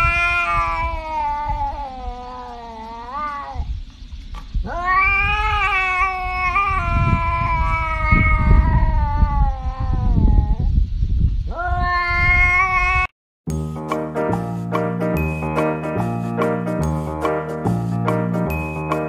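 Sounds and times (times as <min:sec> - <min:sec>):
cat yowling: 0:00.0 - 0:03.8, 0:04.6 - 0:10.7, 0:11.5 - 0:13.1.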